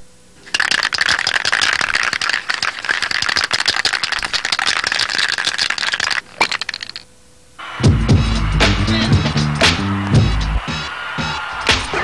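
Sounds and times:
fast rattling clatter: 0:00.4 - 0:07.0.

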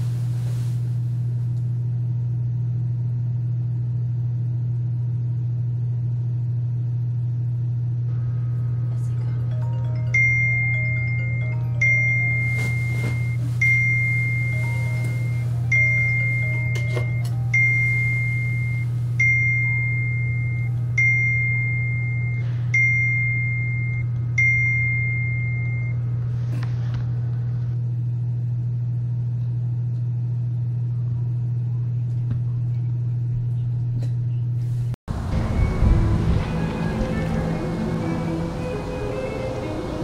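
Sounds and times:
high bell-like note: 0:09.0 - 0:19.0
low drone: 0:35.1 - 0:40.0.

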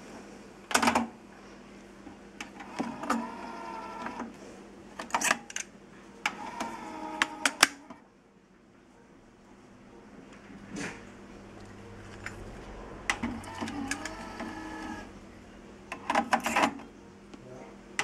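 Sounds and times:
cassette deck humming: 0:11.2 - 0:17.1.

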